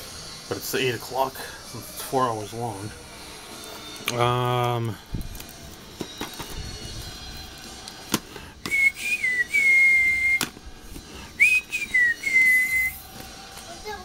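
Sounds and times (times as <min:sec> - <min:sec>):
person whistling: 0:08.6 - 0:10.5, 0:11.3 - 0:13.1.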